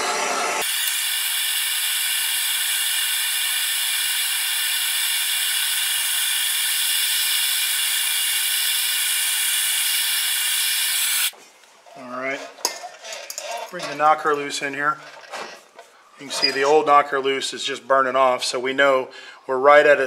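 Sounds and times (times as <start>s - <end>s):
torch flame hissing: 0.0s - 11.4s.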